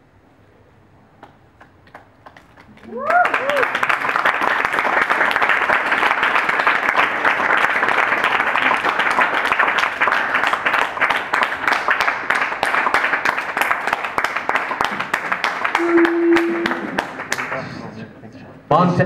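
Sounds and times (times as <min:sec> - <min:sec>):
audience applauding: 0:01.2 - 0:17.9.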